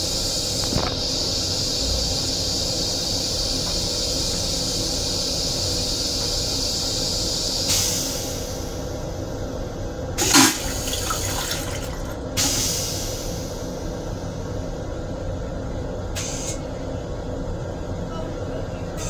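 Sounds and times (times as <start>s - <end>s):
train rumble: 0.0s - 19.0s
hiss of rinse water: 10.2s - 13.6s
train toilet flushing whoosh: 10.2s - 14.2s.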